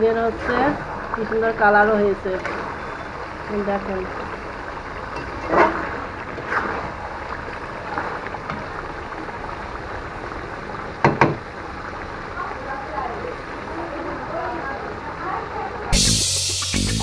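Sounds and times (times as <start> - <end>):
meat sizzling in oil: 0.0 - 17.0
spatula knocking against pan: 11.0 - 11.4.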